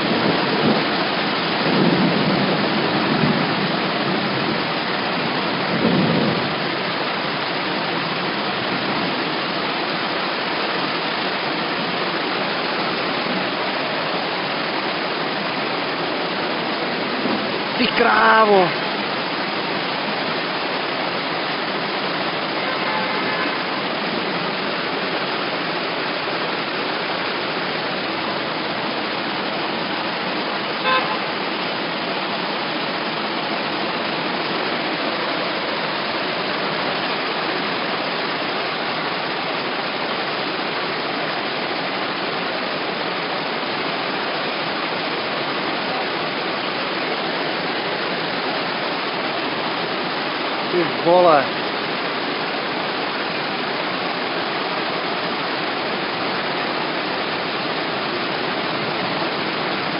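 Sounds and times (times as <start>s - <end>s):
floodwater running: 0.0s - 59.9s
heavy rain: 0.0s - 59.9s
car horn toot: 22.6s - 23.6s, 30.8s - 31.3s.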